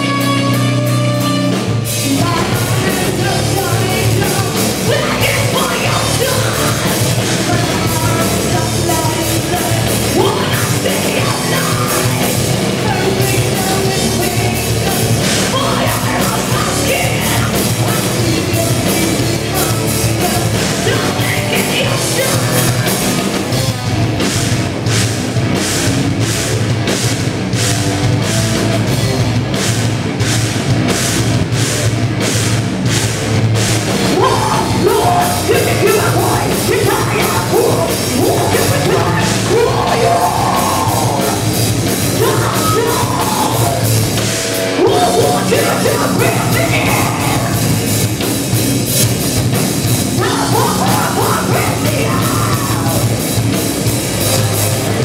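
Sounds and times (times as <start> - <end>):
heavy metal band playing: 0.0 - 55.0
woman singing lead vocal: 2.0 - 22.8, 34.1 - 41.5, 42.2 - 43.9, 44.8 - 47.6, 50.2 - 53.1.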